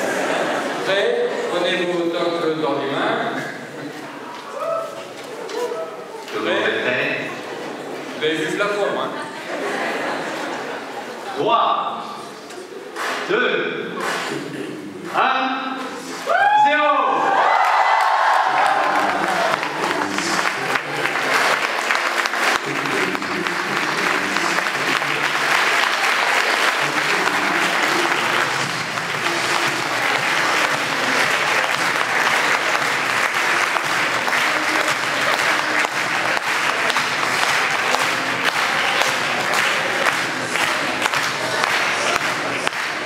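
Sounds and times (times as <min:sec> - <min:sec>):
crowd voices: 0:00.0 - 0:43.0
crowd applauding: 0:13.9 - 0:15.2, 0:16.1 - 0:43.0.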